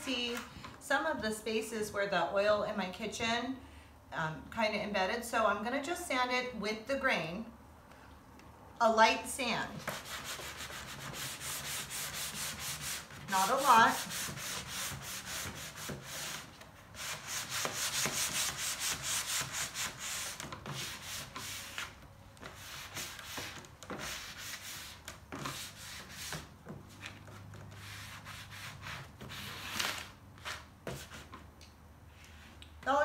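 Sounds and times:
sanding block on wood: 9.8 - 21.8.

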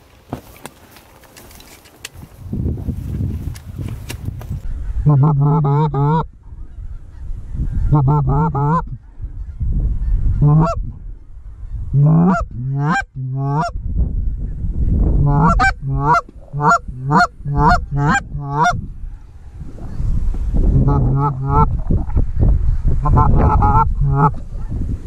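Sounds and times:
wind rumbling on microphone: 0.0 - 25.0
goose honking: 4.8 - 6.8, 7.8 - 9.5, 10.3 - 10.8, 12.0 - 13.8, 15.2 - 18.8, 20.8 - 21.7, 23.0 - 24.8.

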